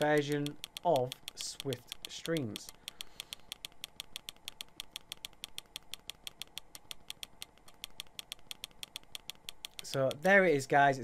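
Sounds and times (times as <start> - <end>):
rapid remote clicking: 0.0 - 10.7.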